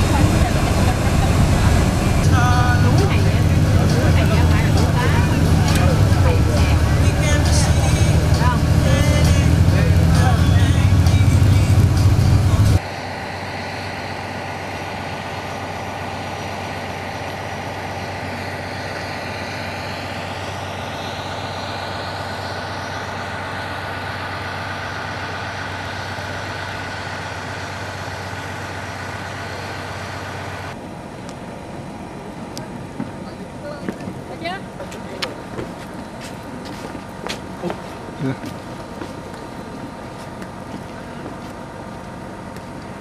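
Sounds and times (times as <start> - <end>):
bus engine and road drone: 0.0 - 43.0.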